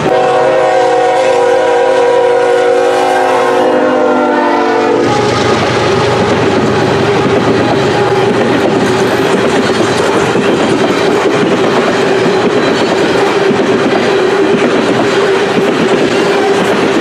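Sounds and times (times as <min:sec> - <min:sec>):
freight train wheels clattering: 0:04.8 - 0:17.0
ringing tone from wheels: 0:07.0 - 0:17.0.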